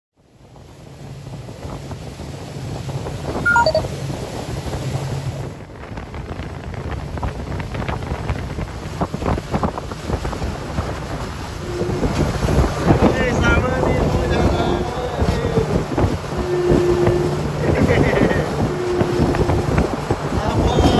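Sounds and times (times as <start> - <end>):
choppy sea water: 0.2 - 20.9
wind buffeting microphone: 0.2 - 20.9
three-note falling beep: 3.5 - 3.9.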